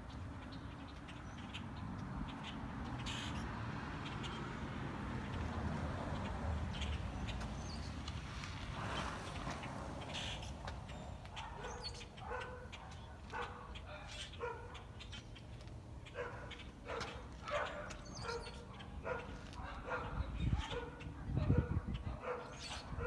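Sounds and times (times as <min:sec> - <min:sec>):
dog barking: 0:11.3 - 0:15.0, 0:16.0 - 0:23.0.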